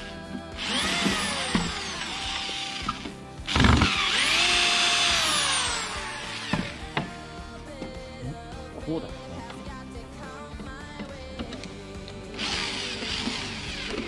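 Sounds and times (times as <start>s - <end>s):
electric drill motor whine: 0.0s - 7.1s, 12.3s - 14.0s.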